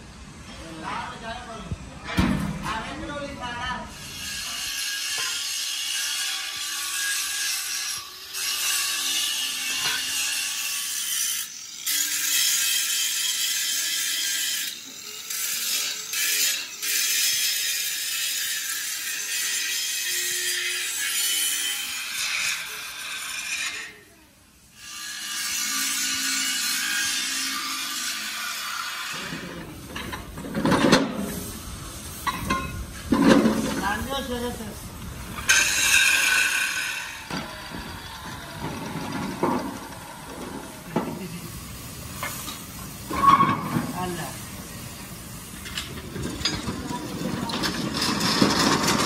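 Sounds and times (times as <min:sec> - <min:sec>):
power tool grinding steel: 0:03.9 - 0:34.6, 0:35.2 - 0:49.0.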